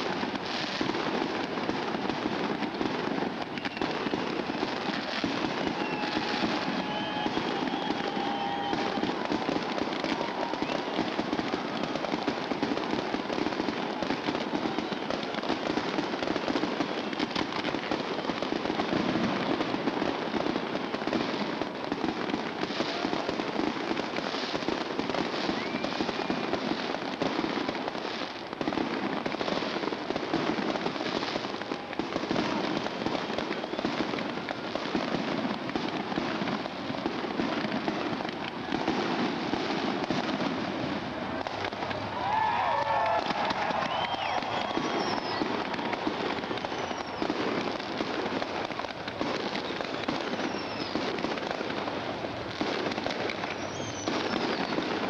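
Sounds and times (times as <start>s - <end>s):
fireworks crackling: 0.0s - 55.0s.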